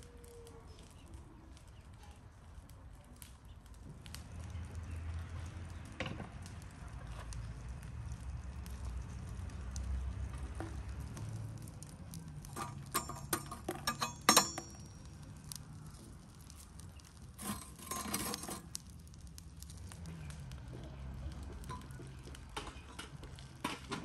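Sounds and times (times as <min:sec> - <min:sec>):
embers scraping: 0:00.1 - 0:24.0
metal tongs clinking on metal: 0:12.4 - 0:15.6, 0:17.4 - 0:18.8.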